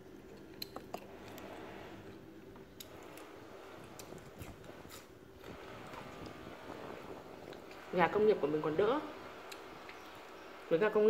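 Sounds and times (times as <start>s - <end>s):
chewing roast meat: 0.0s - 7.9s.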